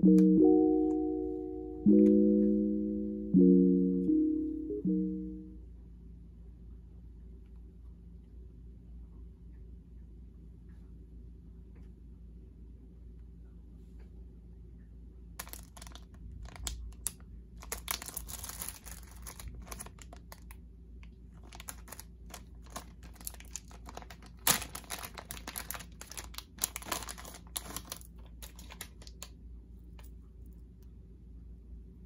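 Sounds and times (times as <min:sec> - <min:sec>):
plastic bag snap: 0:15.4 - 0:20.5, 0:21.4 - 0:29.3
plastic bags crinkling: 0:15.4 - 0:20.5, 0:21.4 - 0:29.3.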